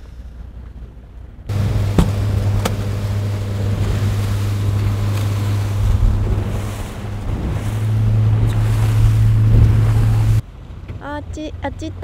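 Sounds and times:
boat engine humming: 0.1s - 12.0s
wind noise on microphone: 0.3s - 10.4s
sea wash: 1.5s - 10.9s.

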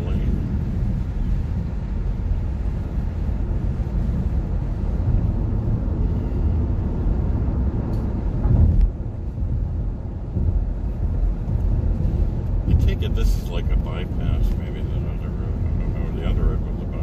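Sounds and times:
tyre and road noise in car cabin: 0.0s - 17.0s.

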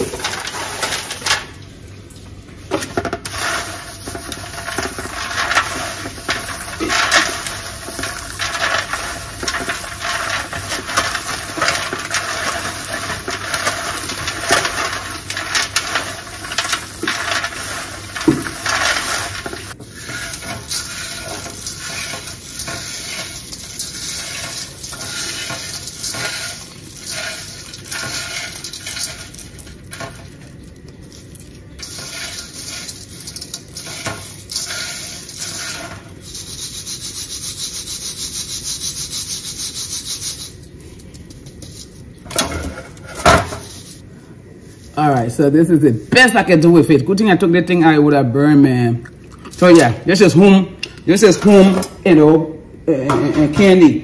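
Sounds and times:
nuts rattling against foil and metal: 0.0s - 1.5s, 3.0s - 37.0s, 49.5s - 52.1s.

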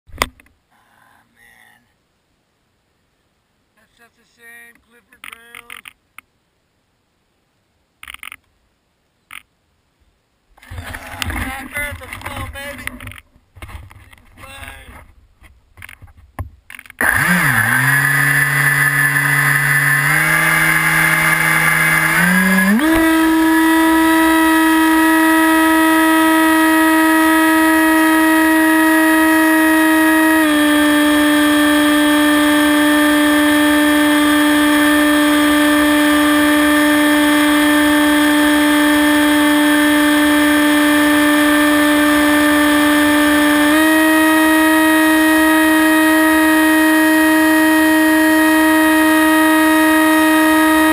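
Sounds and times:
electric motor and propeller whining: 17.0s - 50.9s.

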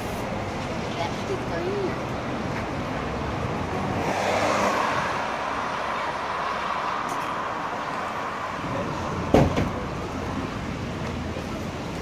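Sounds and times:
road traffic noise: 0.0s - 12.0s
vehicle passing close by: 3.0s - 10.4s.

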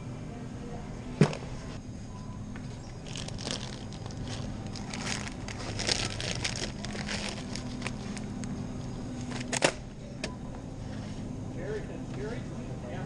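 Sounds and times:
steady low hum: 0.0s - 13.0s
plastic bag crinkling: 3.0s - 8.4s.

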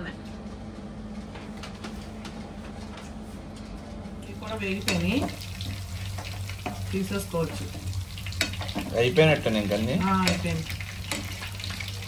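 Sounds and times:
fish sizzling in hot oil: 4.4s - 12.0s.

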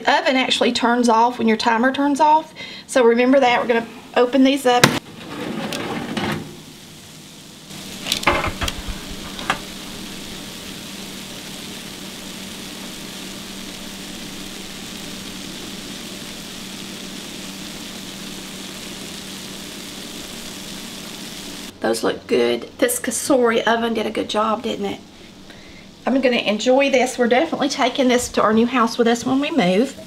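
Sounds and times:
sausage balls sizzling in grease: 6.0s - 21.8s, 23.6s - 30.0s
baking tray knocking and clattering: 8.2s - 9.6s.

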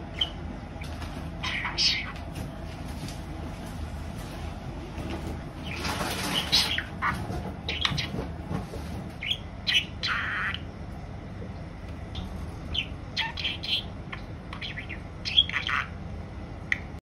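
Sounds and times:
budgerigar chirping and warbling: 0.1s - 0.4s, 1.4s - 2.2s, 5.6s - 8.3s, 9.2s - 10.7s, 12.2s - 16.0s.

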